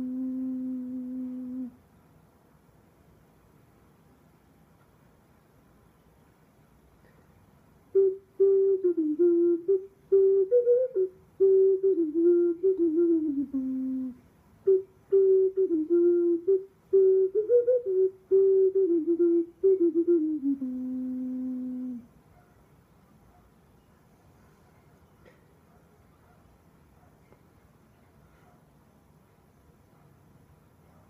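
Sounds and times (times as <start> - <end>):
ocarina melody: 0.0 - 1.8, 8.0 - 22.0.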